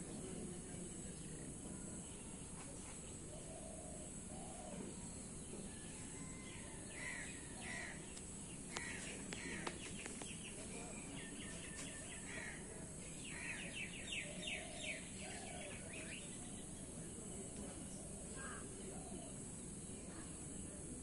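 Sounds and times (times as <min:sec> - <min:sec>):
high insect hum: 0:00.0 - 0:21.0
birds calling: 0:06.2 - 0:19.4.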